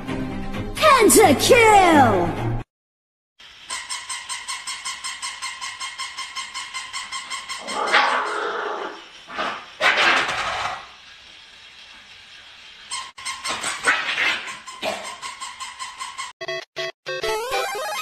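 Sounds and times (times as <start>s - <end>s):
dog yelp: 3.7s - 8.6s
small dogs yapping and barking: 3.7s - 10.8s.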